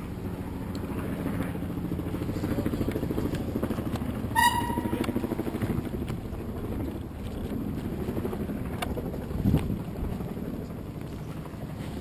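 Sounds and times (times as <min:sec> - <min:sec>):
motorboat engine running: 0:00.0 - 0:12.0
short high-pitched tone: 0:04.4 - 0:05.3.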